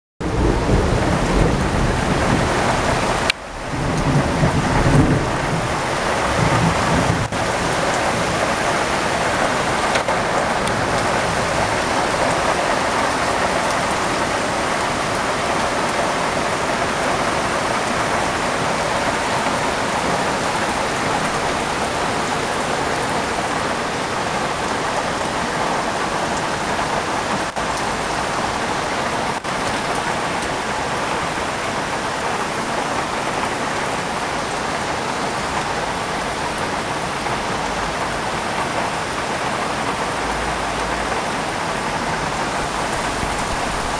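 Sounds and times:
low thunder rumbling: 0.2 - 30.4, 42.1 - 43.9
heavy rain on trees: 0.2 - 43.9.

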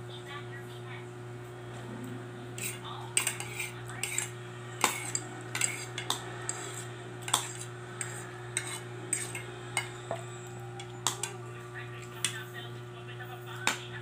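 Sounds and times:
steady low hum: 0.0 - 14.0
cutlery clinking on plate: 2.6 - 10.2, 10.8 - 11.4.

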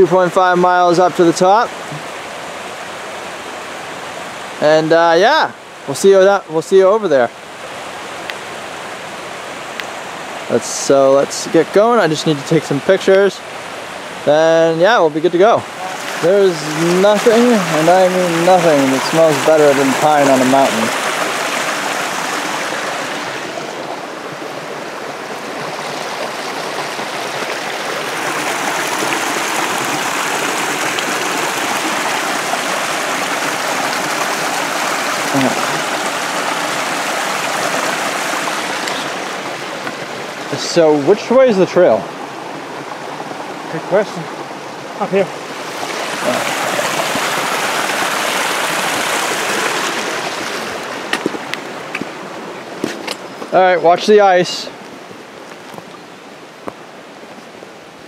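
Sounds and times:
brook rushing over rocks: 14.8 - 54.6.

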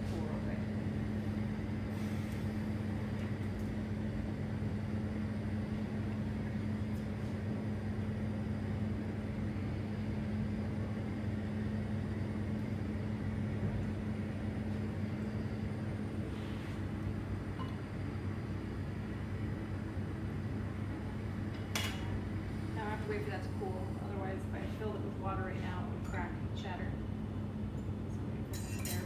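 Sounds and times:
steady low hum: 0.0 - 29.0
torch flame hissing: 1.2 - 2.8.

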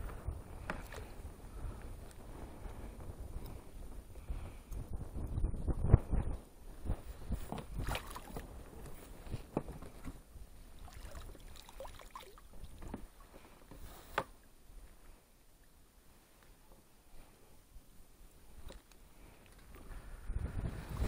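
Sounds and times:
water splashing and dripping: 7.8 - 8.4, 10.8 - 13.0.

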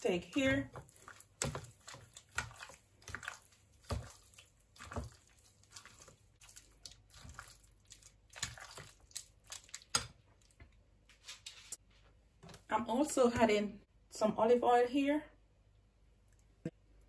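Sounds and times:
raw meat squelching in bowl: 0.0 - 10.6.

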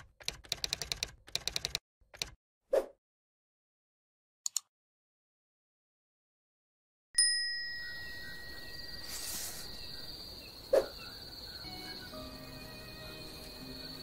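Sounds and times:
sharp bell-like ding: 7.2 - 9.0
low sustained music tones: 7.4 - 10.2, 11.3 - 14.0
high cricket trill: 7.7 - 14.0.

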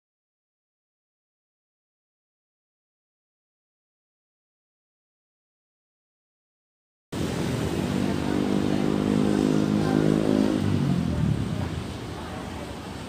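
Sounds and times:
traffic noise: 7.1 - 13.0
vehicle engine passing by: 7.2 - 13.0.

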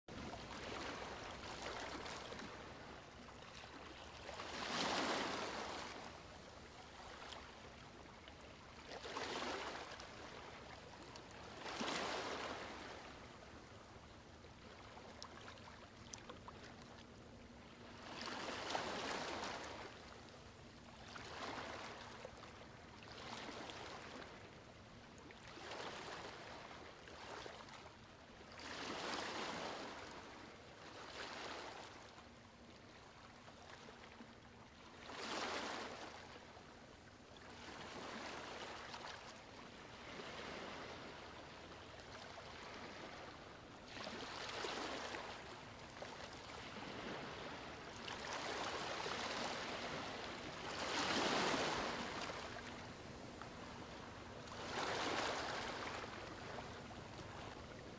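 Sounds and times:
faint steady hum: 0.1 - 57.9
rushing noise in waves: 46.5 - 57.9.

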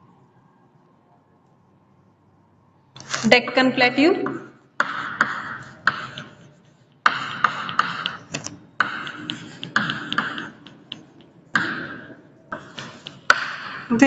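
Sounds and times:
chalk tapping on board: 4.2 - 13.9
chalk scratching on chalkboard: 4.3 - 11.7.

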